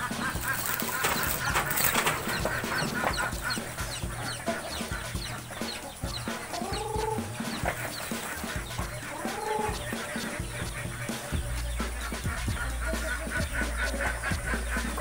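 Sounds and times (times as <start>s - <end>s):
chickens clucking: 0.0s - 15.0s
rising and falling bird call: 0.0s - 15.0s.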